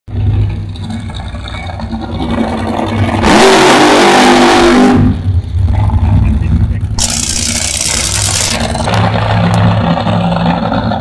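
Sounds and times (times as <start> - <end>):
dragster engine revving loudly: 3.1 - 5.3, 7.0 - 11.0.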